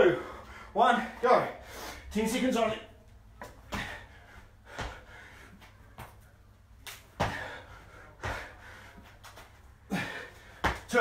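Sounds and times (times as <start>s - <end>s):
thuds and scuffs on concrete: 3.4s - 4.0s, 5.6s - 6.2s, 6.9s - 7.6s, 10.6s - 11.0s.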